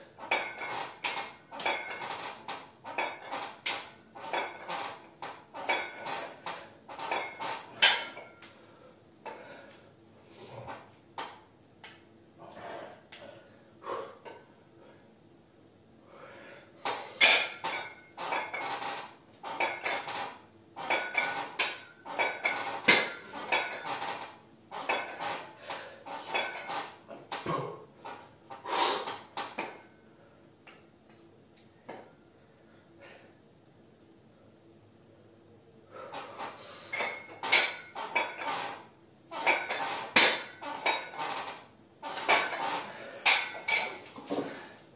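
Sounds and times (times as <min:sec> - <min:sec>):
dumbbells clinking: 0:00.2 - 0:08.6, 0:16.9 - 0:28.2, 0:36.1 - 0:44.7.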